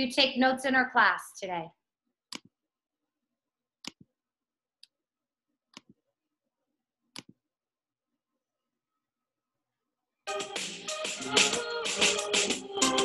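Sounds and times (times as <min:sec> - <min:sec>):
computer mouse clicking: 0:02.3 - 0:02.5, 0:05.7 - 0:06.0, 0:07.1 - 0:07.4.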